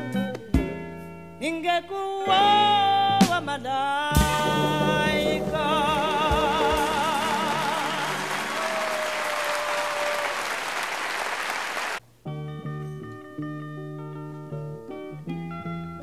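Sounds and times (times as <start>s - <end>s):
sustained accompaniment: 4.2s - 8.9s
applause: 6.6s - 12.0s.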